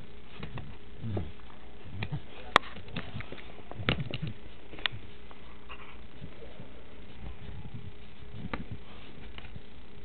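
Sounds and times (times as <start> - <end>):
steady hiss: 0.0 - 10.0
dog sniffing: 2.6 - 9.5.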